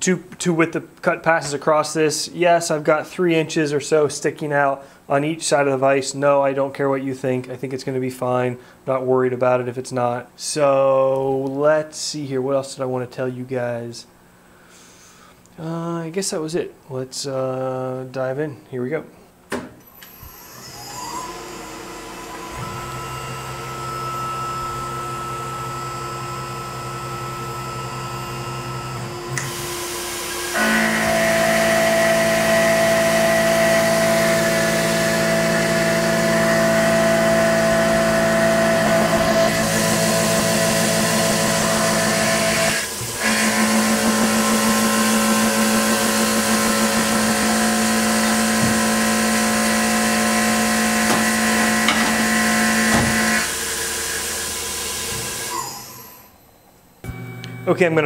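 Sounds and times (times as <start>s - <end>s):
milling machine cutting steel whine: 20.0s - 56.4s.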